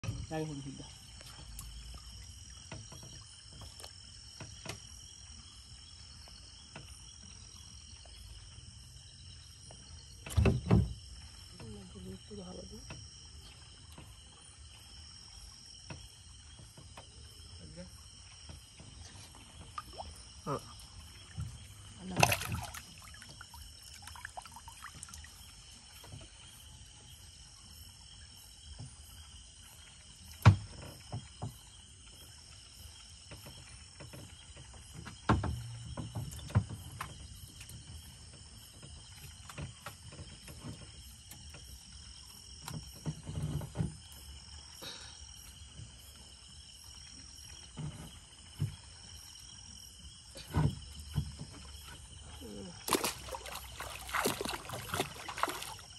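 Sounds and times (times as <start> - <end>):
night insects chorus: 0.0 - 55.9
knocks in a wooden canoe: 1.2 - 5.2, 9.6 - 11.9, 15.4 - 24.5, 30.2 - 32.2, 33.2 - 44.2, 45.6 - 49.4, 50.2 - 55.9.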